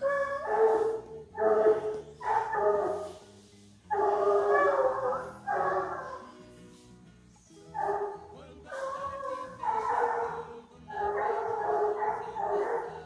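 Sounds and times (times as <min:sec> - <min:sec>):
hound baying: 0:00.0 - 0:06.6, 0:07.6 - 0:13.0.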